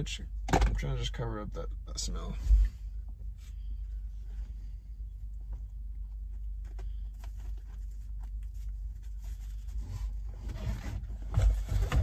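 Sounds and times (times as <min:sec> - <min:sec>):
steady low hum: 0:00.0 - 0:12.0
bumps and rustling: 0:05.4 - 0:12.0.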